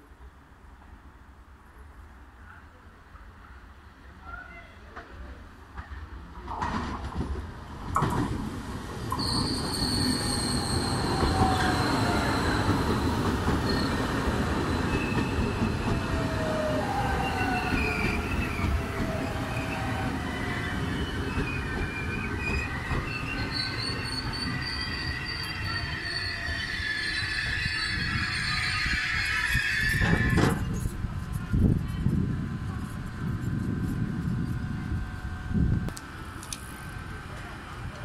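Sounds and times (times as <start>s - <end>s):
train rolling rumble: 3.1s - 38.0s
wheel squeals: 9.2s - 30.9s.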